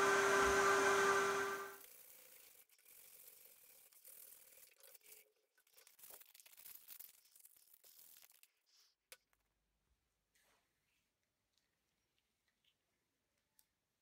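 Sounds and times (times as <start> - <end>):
sandpaper scratching wood: 1.8 - 5.2.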